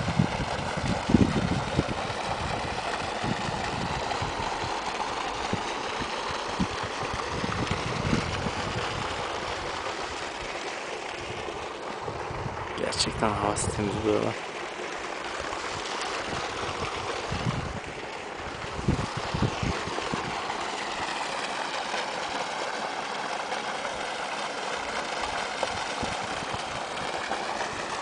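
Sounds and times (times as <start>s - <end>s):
wind buffeting microphone: 0.0s - 10.2s, 11.2s - 14.2s, 15.4s - 21.1s, 25.2s - 28.0s
rushing outdoor noise: 0.0s - 28.0s.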